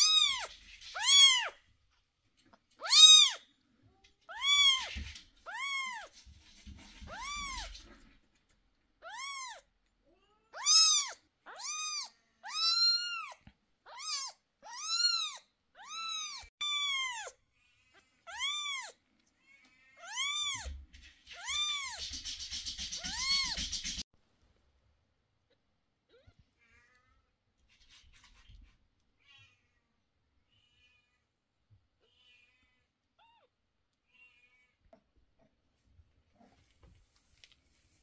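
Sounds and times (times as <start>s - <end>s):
kitten meowing: 0.0s - 1.6s, 2.8s - 3.4s, 4.3s - 6.1s, 7.1s - 7.7s, 9.0s - 17.4s, 18.3s - 19.0s, 20.0s - 20.8s
rustling: 0.0s - 8.7s, 36.1s - 38.0s.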